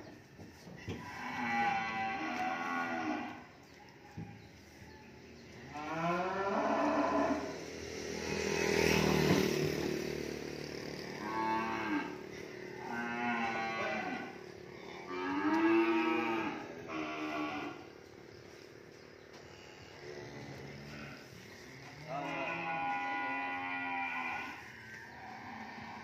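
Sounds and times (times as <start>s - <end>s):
cattle mooing: 0.9s - 3.4s, 5.7s - 7.5s, 11.0s - 18.0s, 19.6s - 26.0s.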